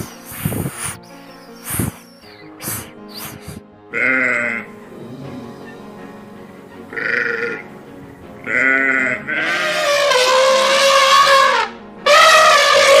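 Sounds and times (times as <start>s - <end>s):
young goat bleating: 8.4s - 9.7s.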